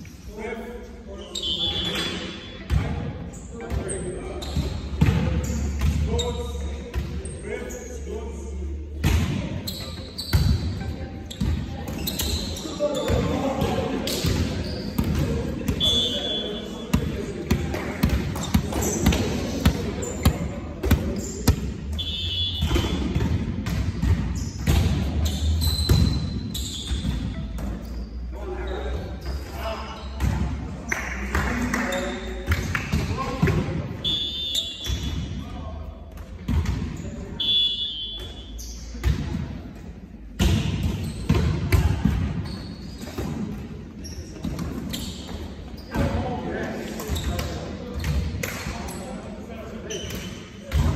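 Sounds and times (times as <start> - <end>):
volleyballs smacking and bouncing: 16.9 - 21.9, 22.6 - 26.3, 30.2 - 33.8, 38.9 - 43.8, 47.0 - 48.8
volleyball hits and bounces: 22.6 - 27.8, 40.3 - 43.6.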